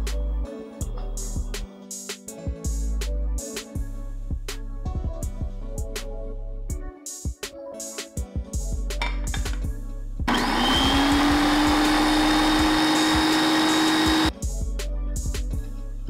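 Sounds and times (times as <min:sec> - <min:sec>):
background music: 0:00.0 - 0:16.0
food processor motor whining: 0:10.3 - 0:14.3.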